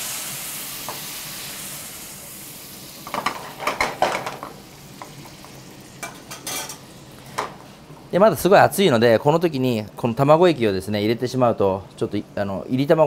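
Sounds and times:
water sizzling in hot fat: 0.0s - 8.8s.

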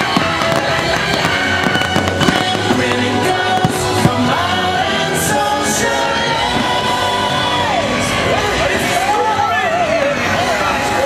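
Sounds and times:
sharp firework pops: 0.0s - 4.5s
soundtrack music with singing: 0.0s - 11.0s.

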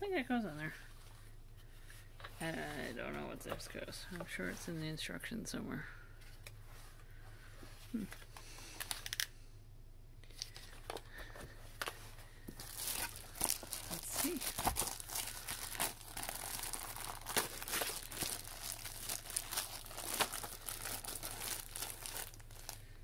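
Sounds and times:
plastic bag crinkling: 12.4s - 23.0s.

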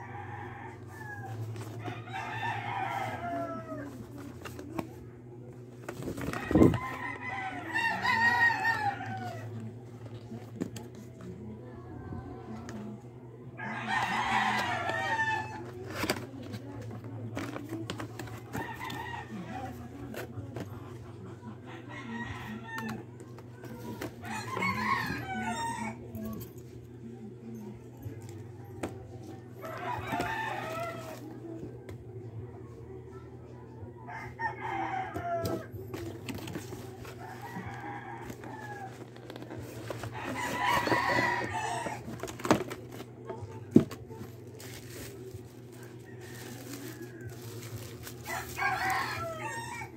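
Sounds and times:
rooster crowing: 0.0s - 4.1s, 6.2s - 9.7s, 13.6s - 16.1s, 21.7s - 23.0s, 23.8s - 26.0s, 29.6s - 31.3s, 34.1s - 42.6s, 45.7s - 49.9s
cardboard box rustling: 5.7s - 7.1s, 14.3s - 20.7s, 35.9s - 49.6s.

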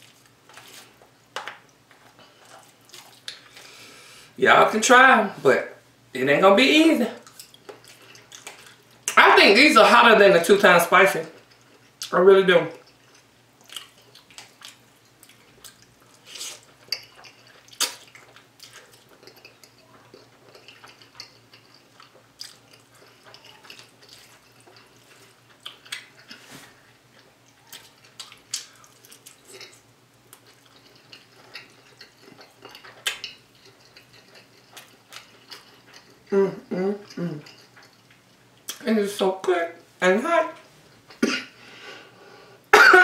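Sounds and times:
wet chewing of noodles: 0.0s - 3.8s, 7.2s - 9.1s, 11.3s - 12.1s, 12.7s - 38.7s
mouth smacks and clicks: 17.2s - 18.1s.

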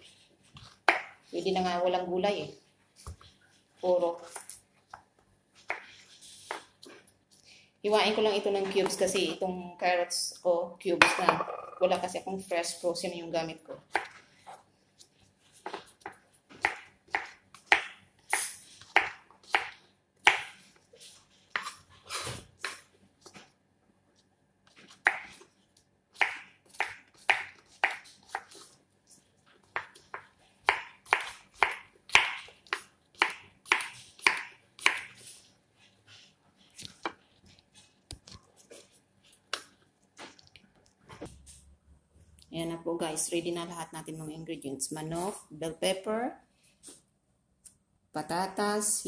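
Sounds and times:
knife chopping on wooden board: 26.2s - 28.5s, 29.8s - 35.1s.

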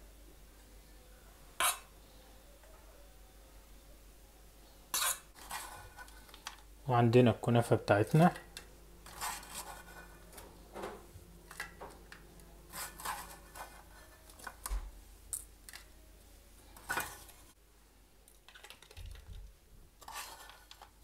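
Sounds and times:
plastic cups and dishes clicking: 18.5s - 19.3s.

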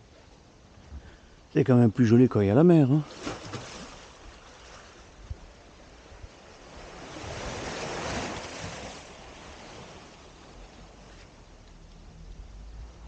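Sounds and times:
wind: 0.0s - 13.0s
sea waves washing: 1.4s - 13.0s.

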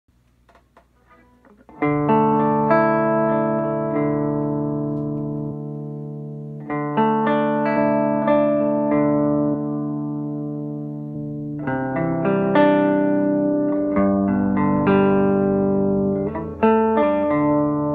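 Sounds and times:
electric guitar chords ringing: 1.0s - 17.9s.

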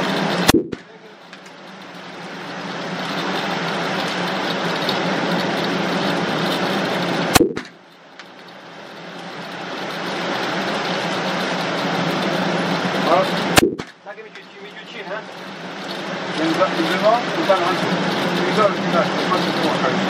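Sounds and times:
low hum: 0.0s - 1.2s, 1.8s - 8.0s, 9.8s - 14.0s
steady rushing background: 0.0s - 20.0s
handgun shot: 0.5s - 0.8s, 7.4s - 7.7s.

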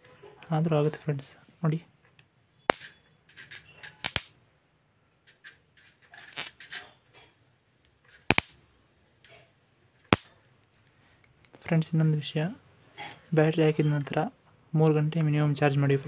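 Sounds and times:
electric spark snaps: 4.0s - 4.4s, 6.3s - 6.6s, 8.3s - 8.6s, 10.1s - 10.4s
faint electric crackles: 6.3s - 6.6s.

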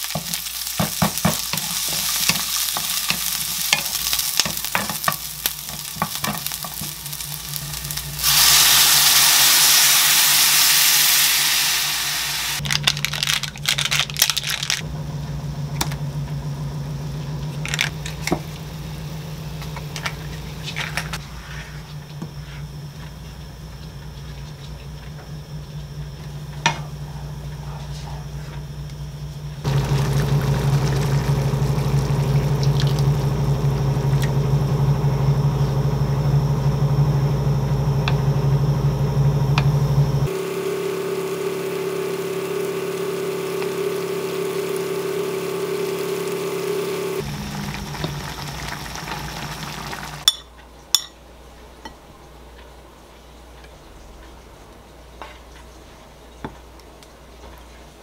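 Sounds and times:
steady low hum: 3.1s - 56.9s
liquid pouring: 29.7s - 33.4s, 47.2s - 50.2s
curry simmering and bubbling: 29.7s - 34.4s.

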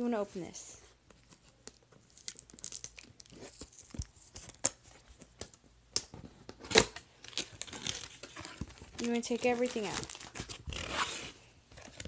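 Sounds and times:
packaging rustling: 6.6s - 12.0s.

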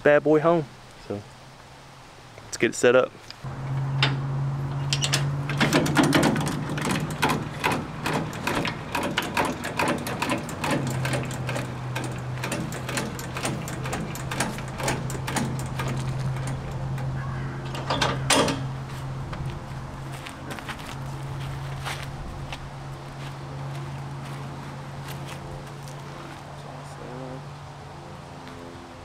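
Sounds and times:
steady low hum: 3.3s - 29.0s
metallic clicks and clanks: 3.6s - 18.8s.

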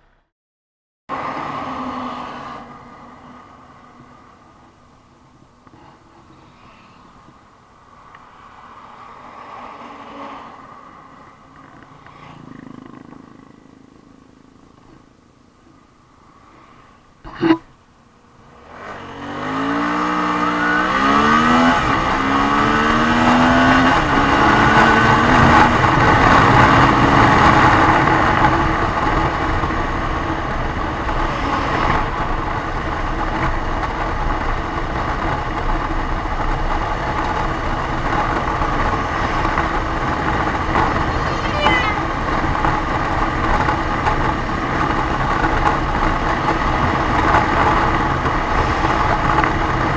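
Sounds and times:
motorcycle engine revving: 18.4s - 34.0s, 35.0s - 49.9s
wind rush at high speed: 18.4s - 49.9s.

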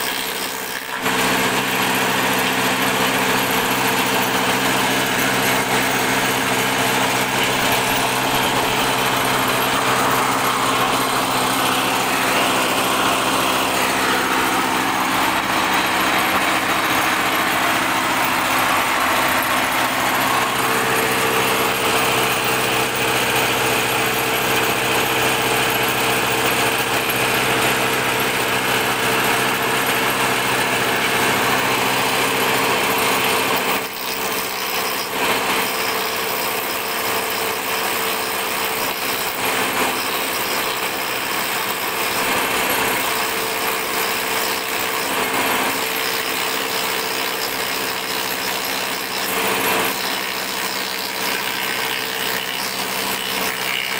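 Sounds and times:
cutter cutting wooden board: 0.0s - 53.9s
spindle moulder motor hum: 0.0s - 53.9s.

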